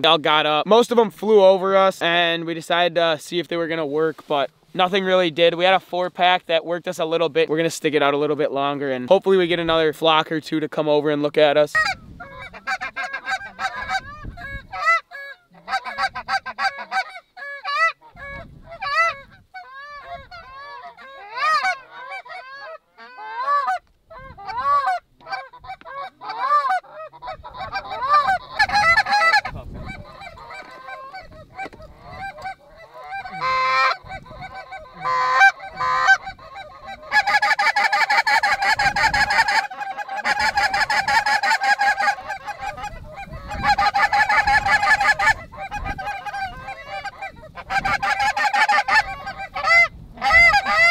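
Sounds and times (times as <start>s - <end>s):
geese honking: 11.6s - 50.9s.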